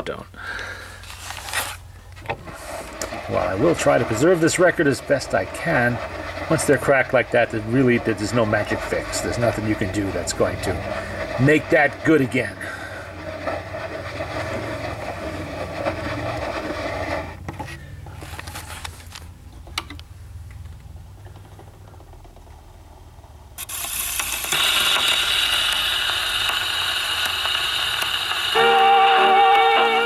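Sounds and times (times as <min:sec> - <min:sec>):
record surface hiss: 0:00.0 - 0:30.0
gramophone winding ratchet: 0:23.6 - 0:29.9.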